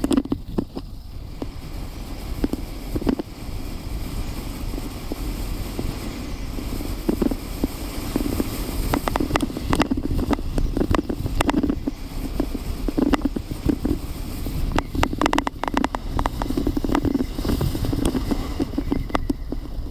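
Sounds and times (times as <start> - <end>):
sled runners scraping on snow: 0.0 - 19.9
wind on microphone: 0.0 - 19.9
sled knocking over bumps: 7.0 - 19.9.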